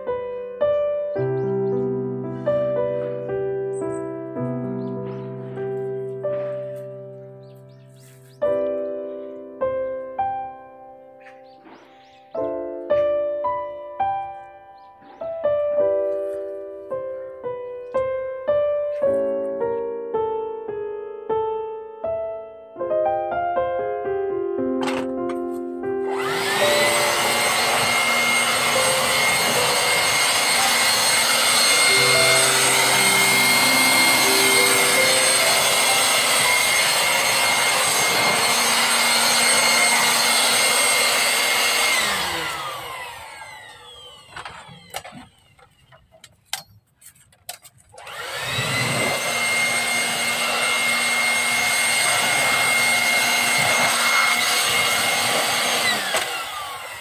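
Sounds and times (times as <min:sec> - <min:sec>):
leaf blower whining: 0:05.1 - 0:07.2, 0:24.8 - 0:57.0.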